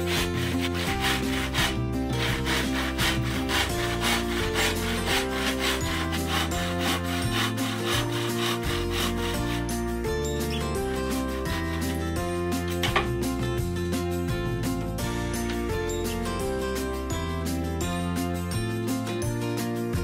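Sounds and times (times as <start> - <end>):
handsaw cutting bamboo: 0.0 - 12.8
background music: 0.0 - 20.0.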